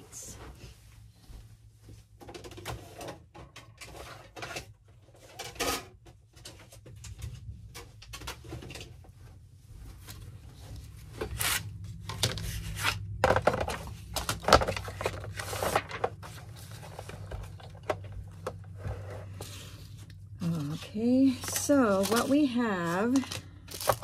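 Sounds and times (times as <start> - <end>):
crinkling and rustling supplies: 0.0 - 24.0.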